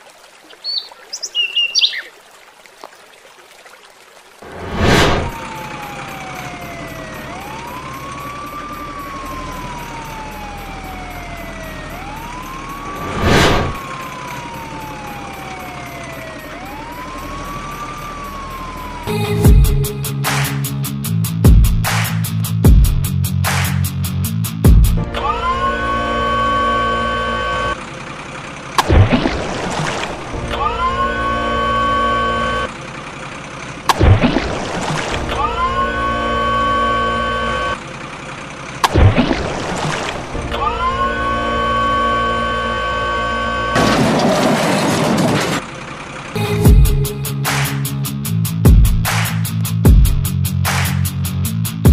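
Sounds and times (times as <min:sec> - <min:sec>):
loud whoosh: 0:04.4 - 0:05.4, 0:13.0 - 0:13.8
siren wailing: 0:05.2 - 0:19.7, 0:25.1 - 0:27.8, 0:30.4 - 0:32.8, 0:35.2 - 0:37.8, 0:40.4 - 0:44.4
horn-like tone gliding up: 0:25.1 - 0:27.8, 0:30.5 - 0:32.8, 0:35.3 - 0:37.8, 0:40.5 - 0:43.9.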